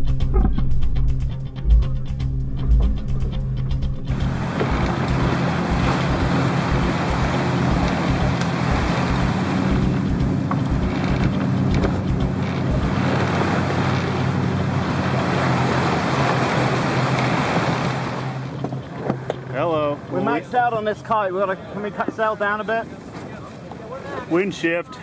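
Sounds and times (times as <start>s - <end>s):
steady low hum: 0.1s - 16.2s
wind buffeting microphone: 4.1s - 19.3s
water rushing past hull: 4.1s - 25.0s.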